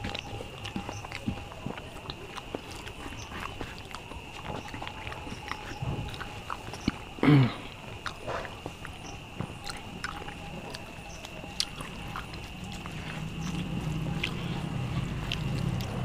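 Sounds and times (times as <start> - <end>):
chewing: 0.0 - 16.0
mouth clicks: 0.0 - 16.0
throat sound: 7.2 - 8.7.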